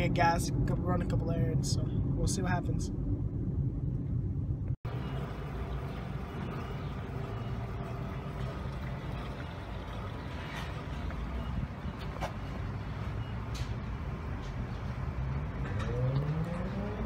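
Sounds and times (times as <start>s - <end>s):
car interior road noise: 2.9s - 17.0s
fuel flowing into tank: 4.9s - 11.6s.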